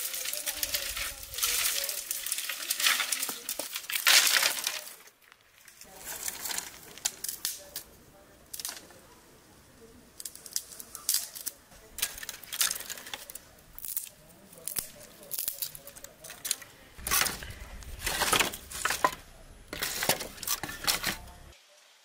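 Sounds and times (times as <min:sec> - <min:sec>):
dry twigs snapping: 0:00.0 - 0:07.9, 0:08.5 - 0:09.0, 0:10.2 - 0:19.2.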